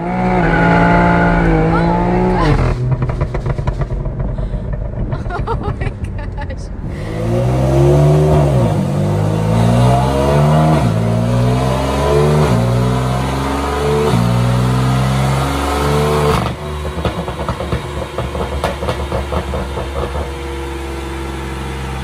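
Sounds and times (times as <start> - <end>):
car engine at full throttle: 0.0 - 22.0
exhaust crackling pops: 2.2 - 6.6.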